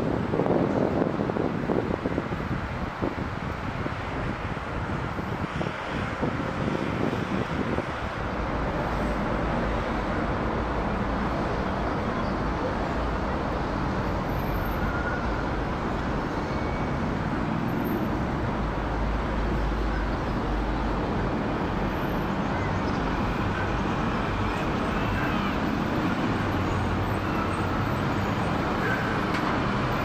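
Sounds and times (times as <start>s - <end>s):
wind buffeting on microphone: 0.0s - 8.7s.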